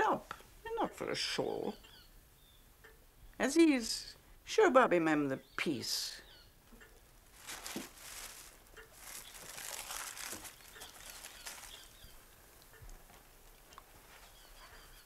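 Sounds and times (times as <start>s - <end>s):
lace rustling and crinkling: 7.2s - 15.0s.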